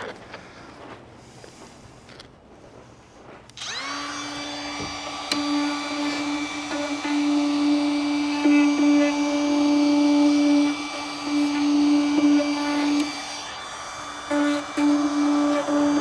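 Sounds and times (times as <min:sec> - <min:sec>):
trim router whining: 0:03.5 - 0:16.0.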